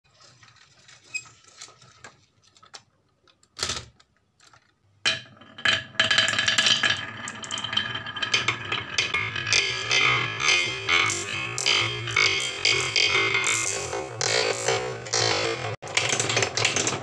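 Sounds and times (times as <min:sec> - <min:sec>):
marbles rolling on wooden slope: 0:04.4 - 0:17.0
toy truck clicks: 0:15.9 - 0:17.0.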